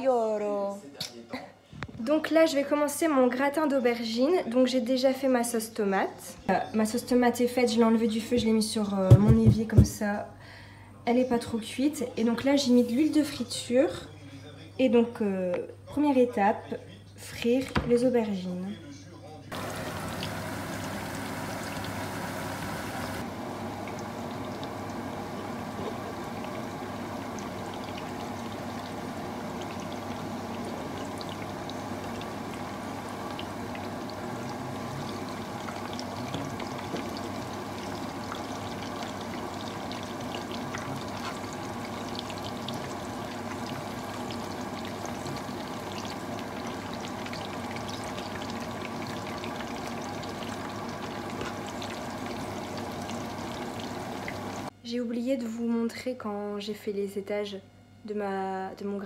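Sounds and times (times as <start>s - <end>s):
oil sizzling with crackles and pops: 19.5s - 54.7s.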